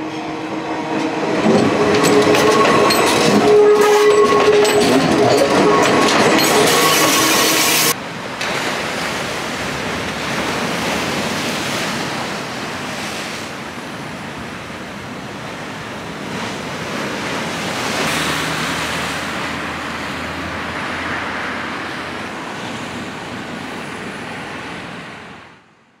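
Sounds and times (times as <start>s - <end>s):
electric train clatter: 0.1s - 8.0s
small waves breaking on shore: 8.0s - 25.6s.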